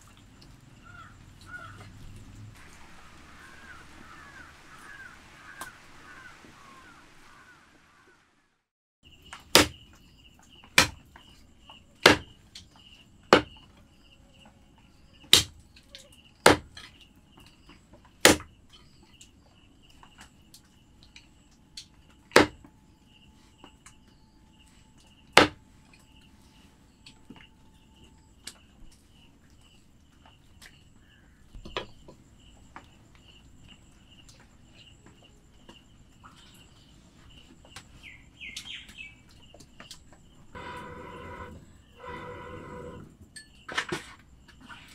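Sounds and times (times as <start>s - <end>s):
faint insect trill: 0.0s - 7.5s, 9.0s - 44.9s
knife chopping on wooden block: 12.0s - 12.3s, 18.3s - 18.5s.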